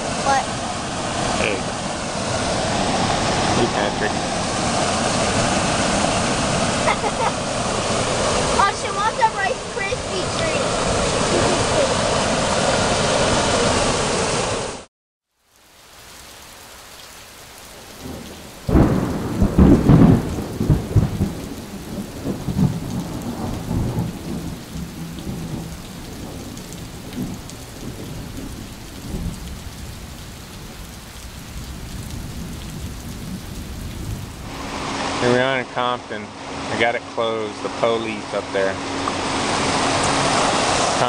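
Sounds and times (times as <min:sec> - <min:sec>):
steady rain: 0:00.0 - 0:41.0
thunder rumbling: 0:18.0 - 0:36.8.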